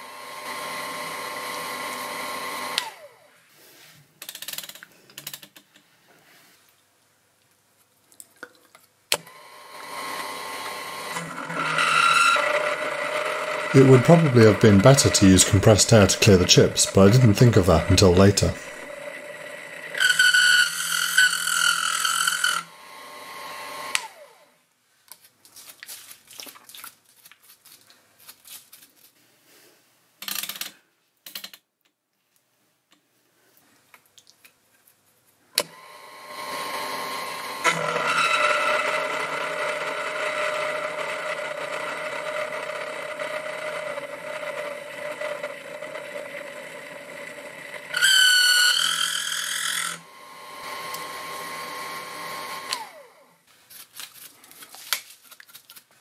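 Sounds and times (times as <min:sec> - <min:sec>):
milling machine cutting steel: 0:09.8 - 0:24.1, 0:36.1 - 0:46.5, 0:47.7 - 0:53.0
high-pitched cutter squeal: 0:11.5 - 0:15.2, 0:19.9 - 0:22.7, 0:37.6 - 0:39.1, 0:47.9 - 0:50.5.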